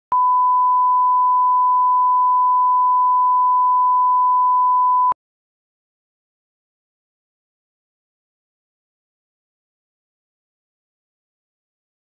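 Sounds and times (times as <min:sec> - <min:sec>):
steady sine tone: 0:00.1 - 0:05.2.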